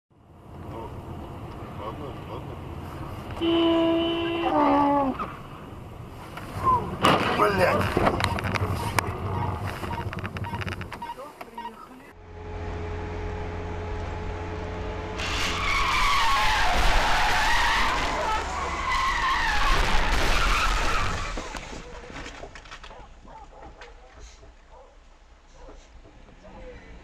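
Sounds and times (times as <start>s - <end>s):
car engine and road noise: 0.1s - 27.0s
tyre squeal: 15.2s - 21.6s.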